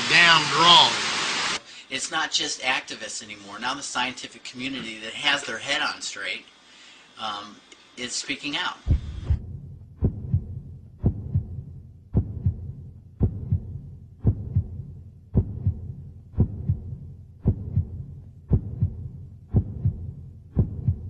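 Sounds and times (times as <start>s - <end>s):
heartbeat double thump: 8.9s - 21.0s.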